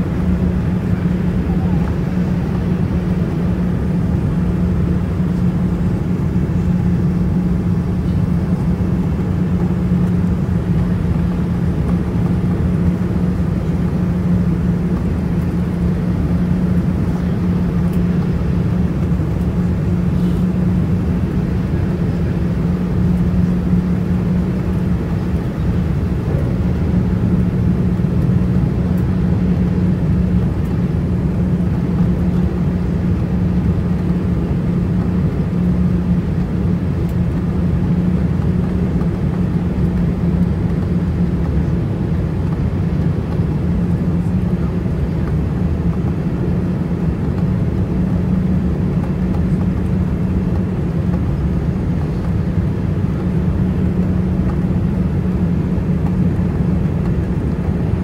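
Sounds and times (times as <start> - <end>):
airliner cabin engine drone: 0.0 - 58.0.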